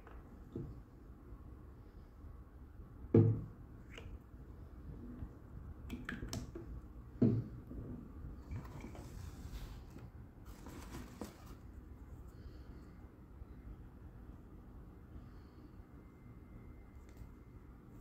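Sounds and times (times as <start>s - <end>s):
wood-wool rustling in cardboard box: 8.8s - 11.8s.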